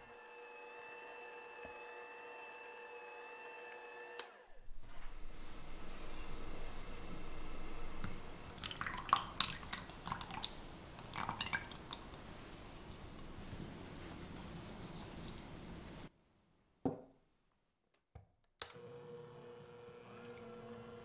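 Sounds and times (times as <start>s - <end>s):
sugar tipped into bowl hissing: 4.6s - 15.7s
cream pouring and splashing: 4.7s - 15.5s.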